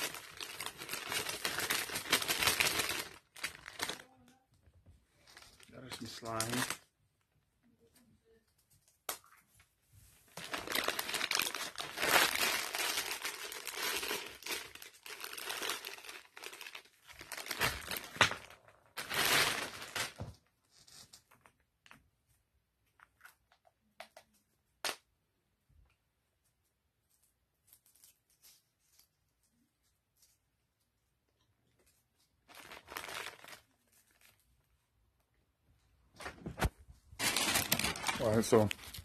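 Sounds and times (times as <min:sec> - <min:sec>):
packaging crinkling and rustling: 0:00.0 - 0:04.4, 0:05.2 - 0:06.8, 0:10.3 - 0:21.6, 0:31.8 - 0:34.7, 0:36.2 - 0:39.0.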